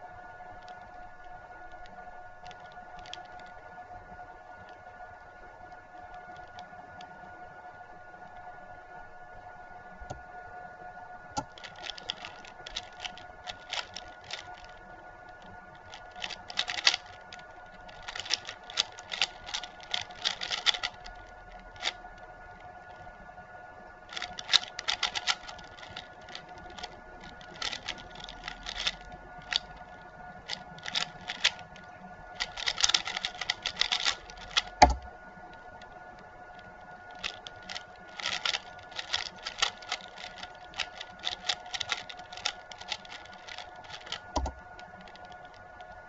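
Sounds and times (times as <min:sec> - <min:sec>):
puzzle cube clicking: 0:11.4 - 0:14.8, 0:15.8 - 0:22.0, 0:24.1 - 0:35.1, 0:37.1 - 0:45.6.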